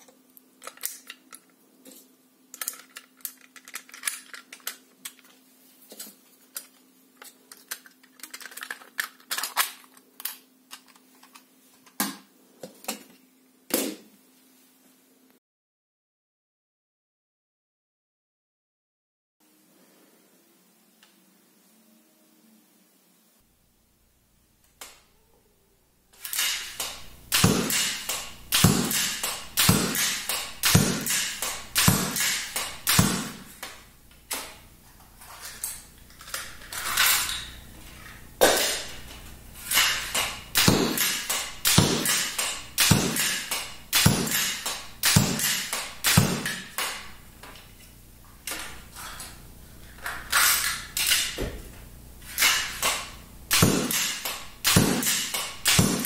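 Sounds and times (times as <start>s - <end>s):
bolts striking target mat: 26.4s - 33.7s, 39.7s - 47.1s, 52.5s - 56.0s.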